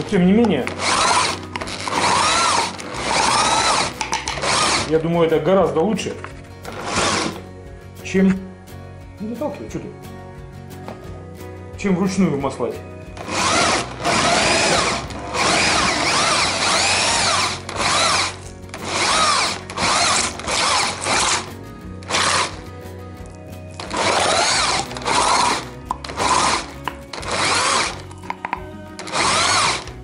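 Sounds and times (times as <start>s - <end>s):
electric drill motor whining: 0.7s - 4.9s, 6.8s - 7.4s, 13.2s - 21.5s, 22.1s - 22.6s, 23.8s - 28.1s, 29.0s - 30.0s
meat grinder turning: 0.7s - 4.9s, 13.2s - 21.5s, 23.8s - 28.1s, 29.0s - 30.0s.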